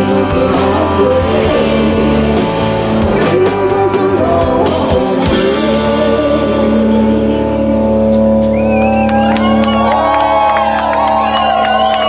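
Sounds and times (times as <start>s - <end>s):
live band playing: 0.0s - 12.0s
audience whistling and cheering: 8.0s - 12.0s.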